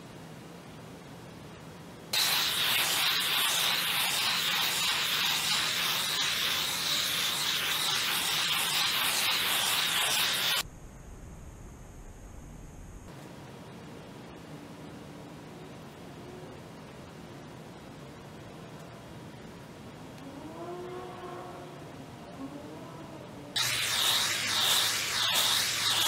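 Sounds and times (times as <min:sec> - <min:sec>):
gas torch hissing: 0:02.2 - 0:10.6, 0:23.6 - 0:26.0.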